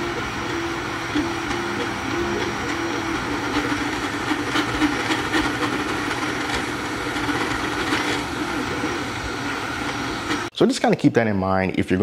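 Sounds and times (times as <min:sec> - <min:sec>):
printer axes humming and clicking: 0:00.0 - 0:10.5
printer fans running: 0:00.0 - 0:10.7.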